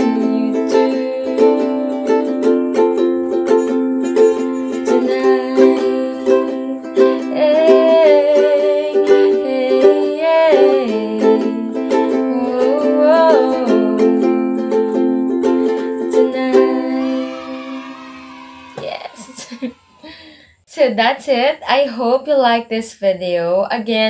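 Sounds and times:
woman singing wordlessly: 0.0 - 3.5, 4.4 - 17.9
ukulele strumming: 0.0 - 19.6.

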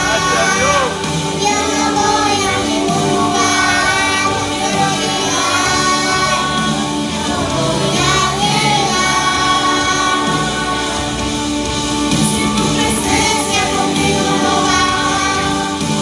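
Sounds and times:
child singing: 0.0 - 11.5, 12.2 - 16.0
instrumental backing music: 0.0 - 16.0.

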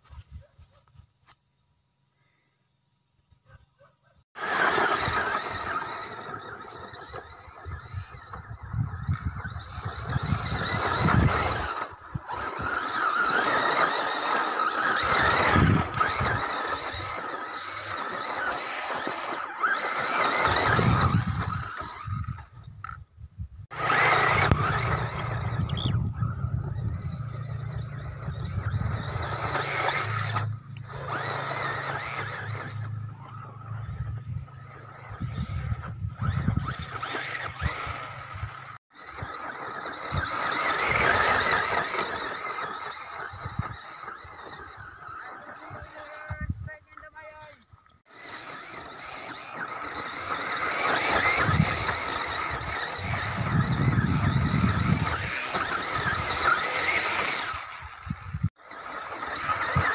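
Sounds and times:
toy car motor whining: 4.3 - 23.0, 23.6 - 59.9.

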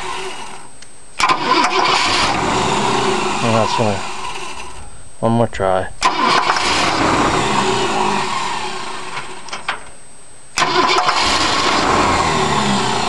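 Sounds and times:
starter motor cranking: 1.2 - 4.7, 6.0 - 9.5, 10.6 - 13.0.

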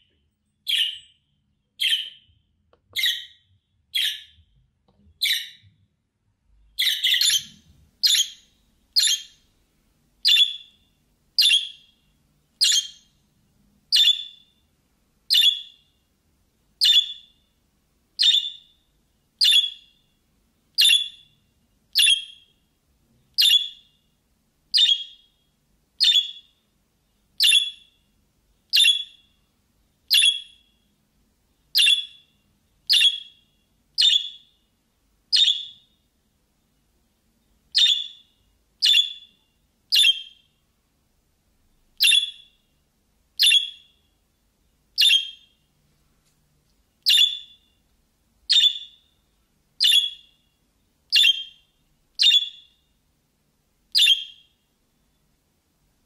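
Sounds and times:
budgie chirping: 0.7 - 1.2, 1.8 - 2.3, 3.0 - 4.4, 5.2 - 5.6, 6.8 - 9.4, 10.2 - 12.0, 12.6 - 13.1, 13.9 - 14.5, 15.3 - 15.8, 16.8 - 17.4, 18.2 - 18.8, 19.4 - 20.0, 20.8 - 21.4, 22.0 - 22.5, 23.4 - 23.9, 24.7 - 25.3, 26.0 - 26.6, 27.4 - 28.0, 28.7 - 29.3, 30.1 - 30.7, 31.7 - 32.3, 32.9 - 34.6, 35.3 - 35.9, 37.7 - 40.5, 42.0 - 42.6, 43.4 - 44.0, 45.0 - 45.6, 47.0 - 47.7, 48.5 - 49.1, 49.8 - 50.4, 51.1 - 51.6, 52.2 - 52.8, 53.9 - 54.5.

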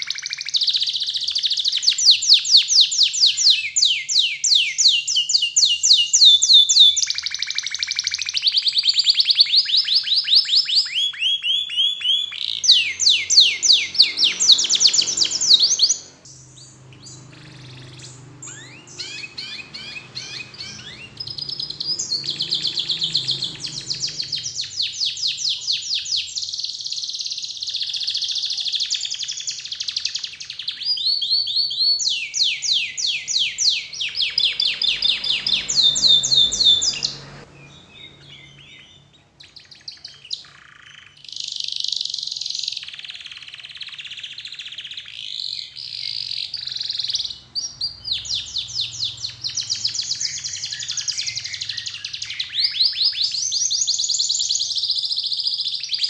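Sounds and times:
canary singing trills: 0.0 - 56.0.

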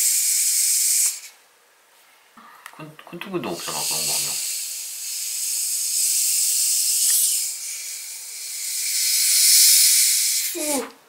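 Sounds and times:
gas hissing from bottle: 0.0 - 1.4, 3.5 - 10.8.

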